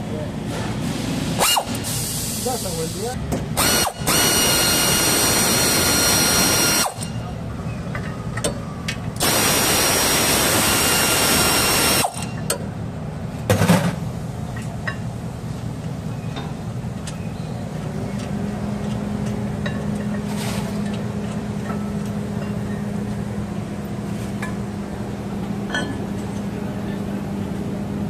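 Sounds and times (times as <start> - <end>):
power ratchet wrench whine: 1.4 - 2.3, 3.6 - 7.2, 9.2 - 12.4.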